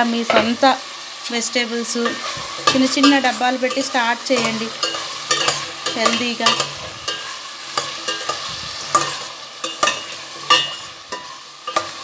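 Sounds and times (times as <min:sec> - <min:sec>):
vegetables sizzling in oil: 0:00.0 - 0:12.0
metal ladle clinking pot: 0:02.0 - 0:12.0.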